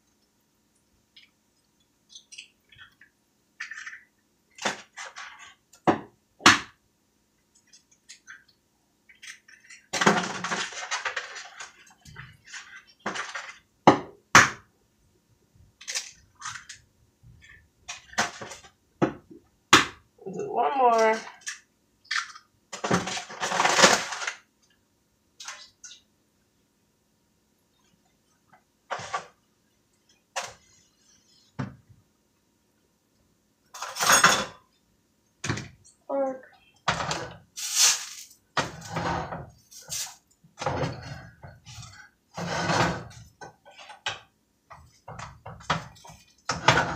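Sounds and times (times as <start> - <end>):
cookware and utensils clattering: 9.2 - 14.1, 33.7 - 34.6, 38.2 - 46.9.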